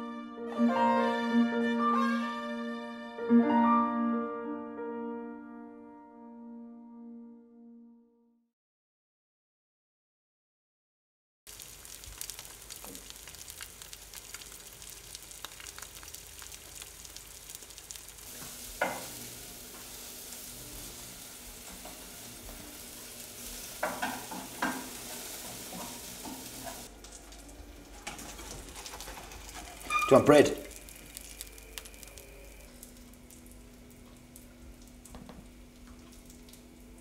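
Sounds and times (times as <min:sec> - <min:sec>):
egg sizzling in a pan: 0:11.5 - 0:37.0.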